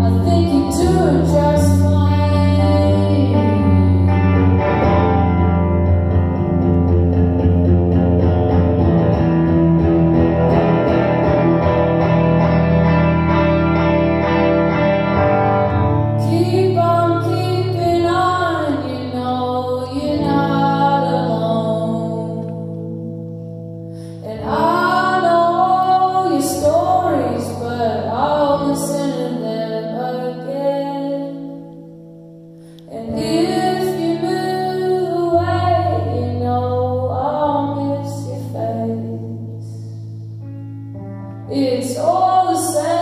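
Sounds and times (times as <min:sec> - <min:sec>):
woman singing: 0:00.0 - 0:04.9, 0:16.2 - 0:23.2, 0:24.1 - 0:31.8, 0:32.8 - 0:40.1, 0:41.5 - 0:43.0
electric guitar chords ringing: 0:00.0 - 0:43.0.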